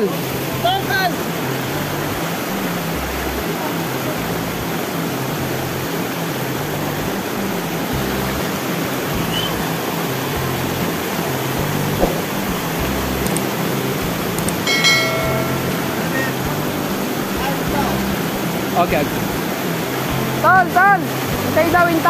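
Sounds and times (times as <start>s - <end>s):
mountain river rushing: 0.0s - 22.0s
click: 13.2s - 13.5s
brief chime: 14.6s - 16.4s.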